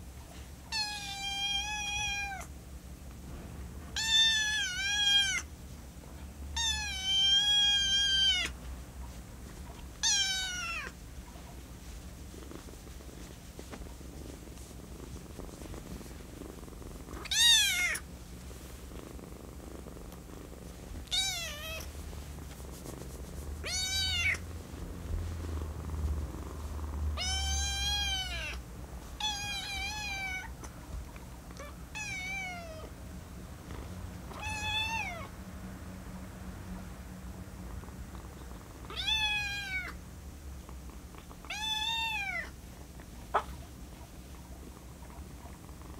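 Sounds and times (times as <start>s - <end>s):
kitten meowing: 4.0s - 5.5s, 6.6s - 8.6s, 10.0s - 10.9s, 17.2s - 18.0s, 21.1s - 21.8s, 23.6s - 24.4s, 27.2s - 28.6s, 34.4s - 35.3s, 41.5s - 42.5s.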